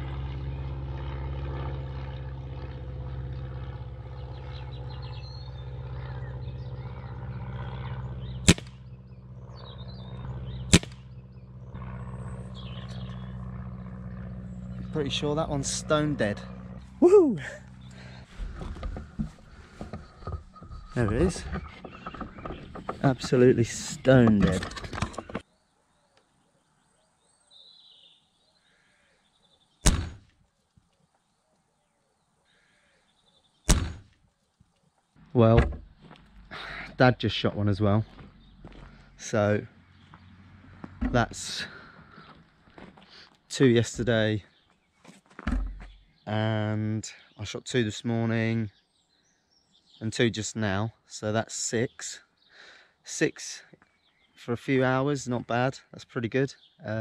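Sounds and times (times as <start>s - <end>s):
low engine-like hum: 0.0s - 25.4s, 35.2s - 44.6s
air rifle shots: 8.4s - 8.8s, 10.7s - 11.1s, 29.8s - 30.2s, 33.7s - 34.1s.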